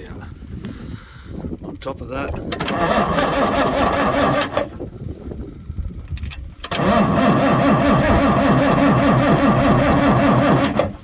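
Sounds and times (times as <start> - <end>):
starter motor cranking engine: 2.2 - 4.8, 6.6 - 11.0.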